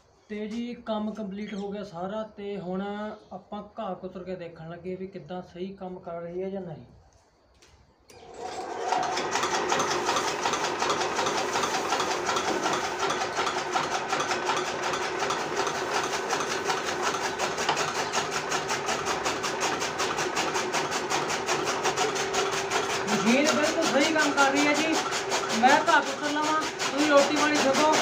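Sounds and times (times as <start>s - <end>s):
chaff cutter chopping fodder: 8.2s - 28.0s.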